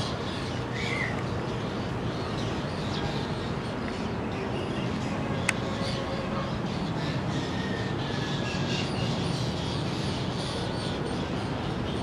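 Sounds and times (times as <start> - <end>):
terns calling: 0.0 - 3.8
low rumble of traffic: 0.0 - 12.0.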